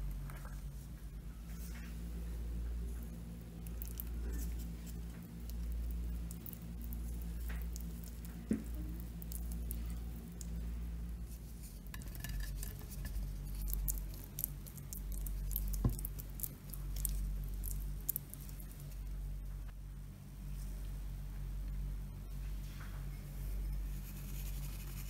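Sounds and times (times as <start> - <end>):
steady low hum: 0.0 - 25.0
spatula squishing jam: 3.0 - 19.1.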